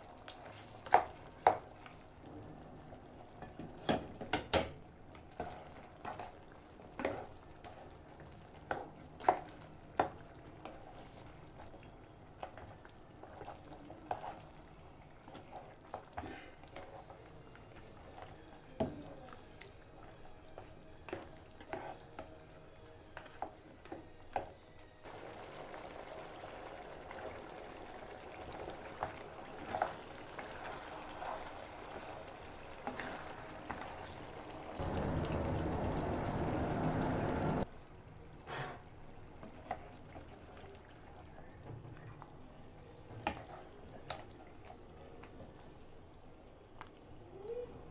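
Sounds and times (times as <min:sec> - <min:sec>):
sauce sizzling: 0:00.0 - 0:41.6
spoon scraping a pan: 0:21.1 - 0:22.2.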